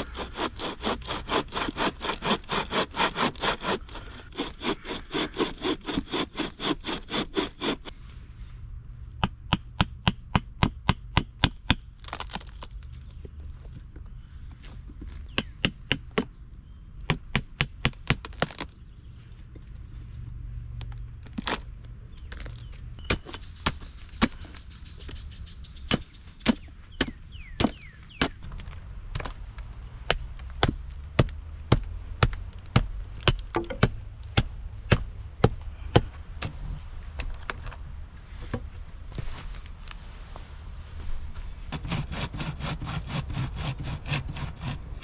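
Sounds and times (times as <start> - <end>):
axe chopping wood: 25.9 - 29.4, 30.1 - 36.6.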